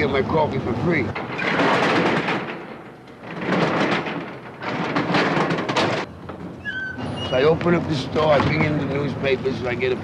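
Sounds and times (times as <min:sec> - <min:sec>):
steel security gate rattling: 0:01.2 - 0:07.5.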